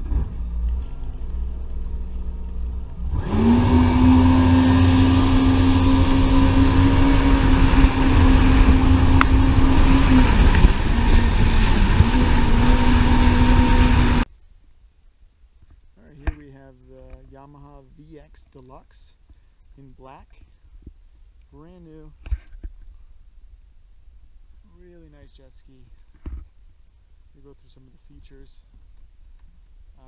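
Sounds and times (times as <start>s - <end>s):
watercraft engine running: 1.1s - 14.2s
water spray rushing: 3.3s - 14.2s.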